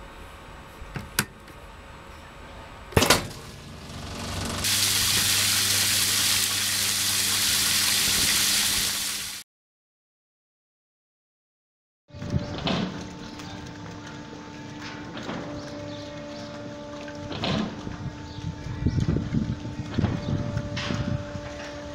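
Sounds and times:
low hum: 0:02.0 - 0:07.5
water spray hissing: 0:04.5 - 0:09.4.

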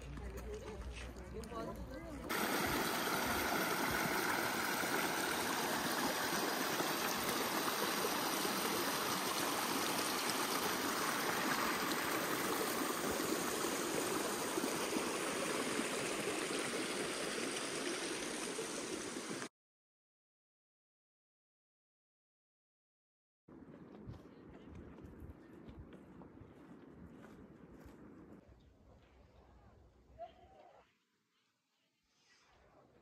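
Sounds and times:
creek running over rocks: 0:00.0 - 0:19.5.

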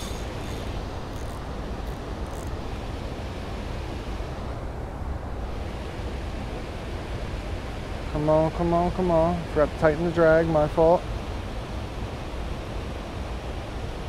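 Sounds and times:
faint high ticks: 0:00.0 - 0:02.6
flowing water: 0:00.0 - 0:14.0.

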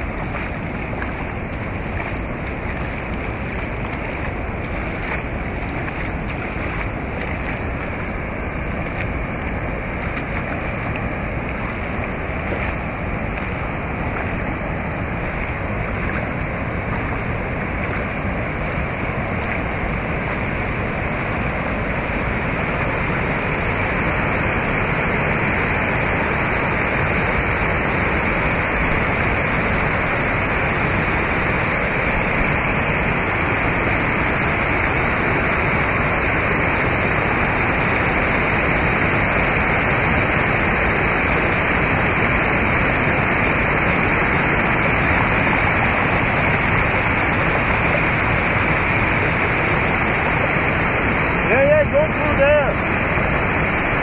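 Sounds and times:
rushing river water: 0:00.0 - 0:54.0.

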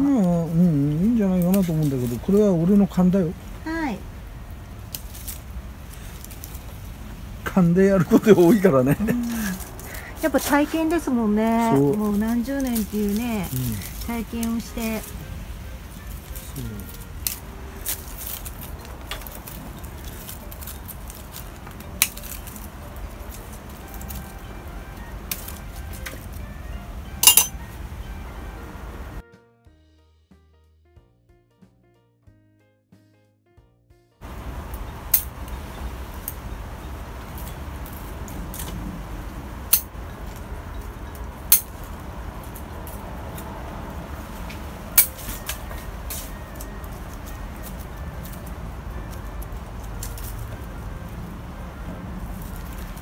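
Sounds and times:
pruning shears snipping twigs: 0:00.1 - 0:03.3, 0:04.8 - 0:26.5, 0:34.3 - 0:51.4
low steady rumble: 0:34.2 - 0:53.0.

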